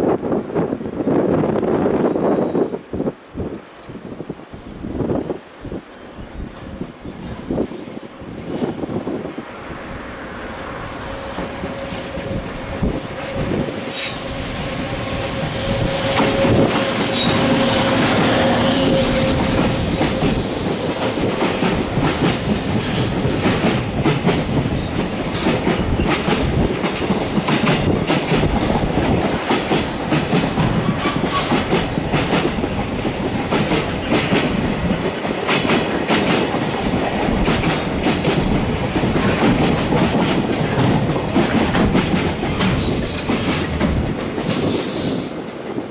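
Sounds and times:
train wheels rolling on rail: 0.0s - 45.9s
high wheel squeals: 10.7s - 19.4s
clickety-clack over rail joints: 15.2s - 45.9s.

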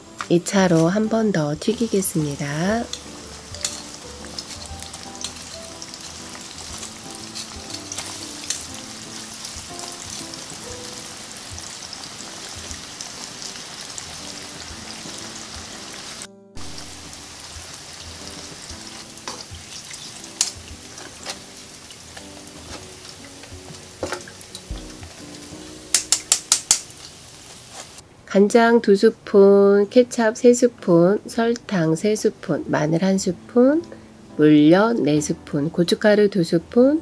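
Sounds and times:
chicken deep-frying in oil: 0.7s - 28.0s
utensils clicking against pan: 2.8s - 8.8s, 19.2s - 21.5s, 25.9s - 27.1s.

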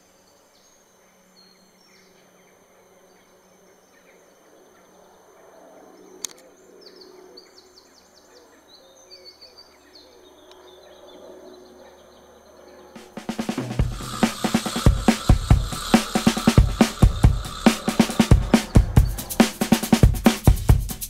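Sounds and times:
low steady hiss: 0.0s - 4.5s
songbirds chirping: 0.0s - 20.1s.

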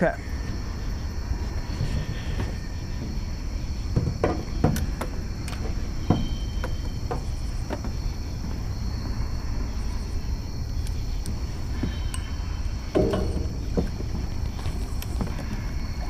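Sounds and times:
night insects droning: 0.0s - 16.0s
steady low rumble: 0.0s - 16.0s
knocks and clunks on boat deck: 1.6s - 9.5s, 12.8s - 16.0s.

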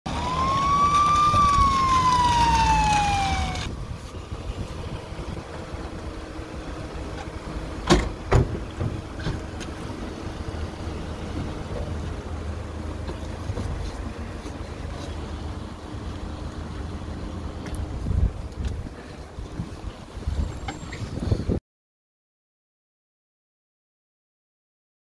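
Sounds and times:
police siren wailing: 0.1s - 3.8s.

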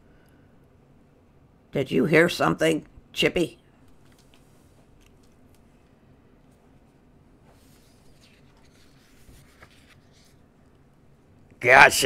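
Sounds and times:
soft scrapes and ticks: 7.4s - 10.4s
paper book page turning: 7.5s - 10.5s.

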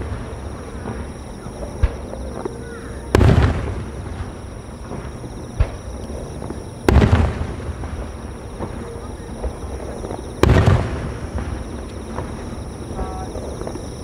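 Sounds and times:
firework booms with echo: 0.0s - 2.1s, 3.0s - 13.8s
sharp firework bang: 3.1s - 4.3s, 6.9s - 8.0s, 10.4s - 11.5s.

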